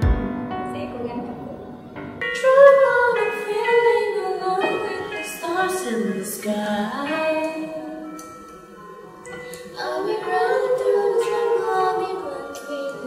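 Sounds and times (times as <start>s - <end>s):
musical accompaniment: 0.0s - 13.0s
women singing together: 2.4s - 8.2s, 9.3s - 13.0s.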